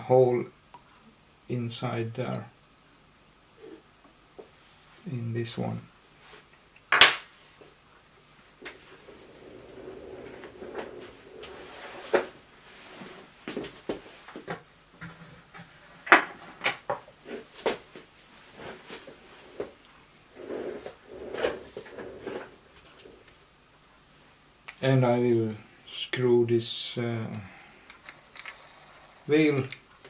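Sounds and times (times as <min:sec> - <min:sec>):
soft rustling: 0:08.6 - 0:14.5, 0:17.3 - 0:23.4
hard objects clicking and knocking: 0:27.9 - 0:29.9.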